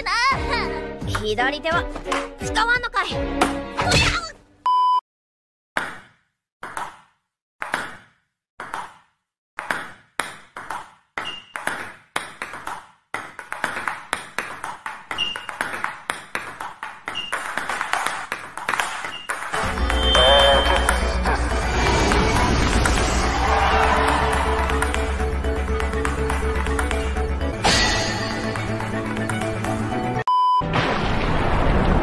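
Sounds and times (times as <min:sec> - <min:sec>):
balls bouncing on table: 0:05.8 - 0:20.1
table tennis balls hitting paddles: 0:05.8 - 0:21.0, 0:22.9 - 0:27.0.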